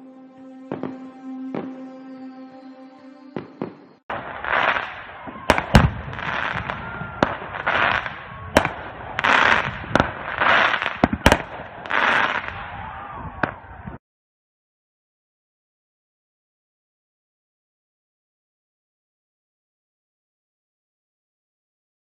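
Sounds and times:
fireworks bangs: 0.7 - 1.8, 3.4 - 13.9
fireworks crackling hiss: 3.4 - 12.6.

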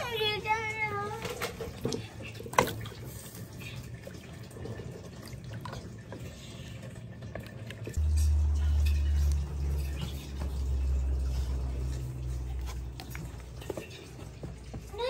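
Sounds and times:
broth sloshing and bubbling: 1.1 - 15.0
wooden spoon stirring pot: 4.6 - 15.0.

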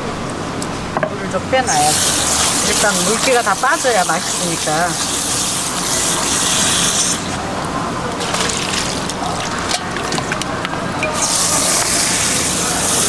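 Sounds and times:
tap water running: 1.7 - 7.4, 8.0 - 13.0
handling clicks and knocks: 8.2 - 11.2.

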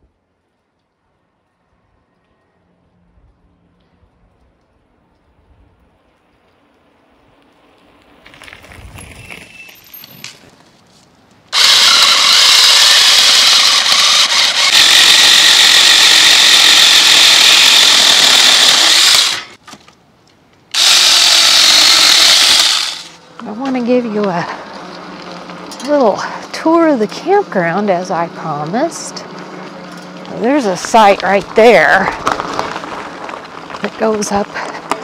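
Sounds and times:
chainsaw cutting branches: 11.5 - 19.6, 20.7 - 33.2.

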